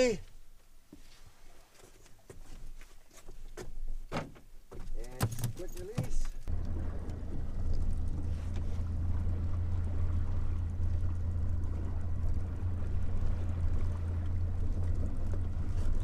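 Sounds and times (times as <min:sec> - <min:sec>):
outboard motor running: 0:06.4 - 0:16.0.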